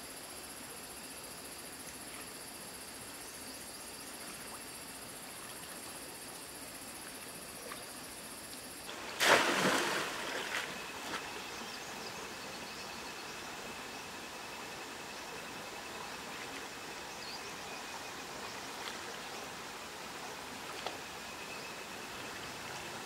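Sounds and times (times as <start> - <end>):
running water: 4.1 - 12.1
fish trap splashing into stream: 8.9 - 11.2.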